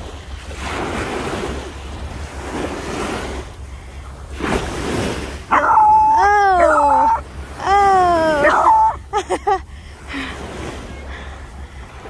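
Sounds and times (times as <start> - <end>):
small waves washing onto sand: 0.0 - 12.0
dog howling: 5.5 - 9.0.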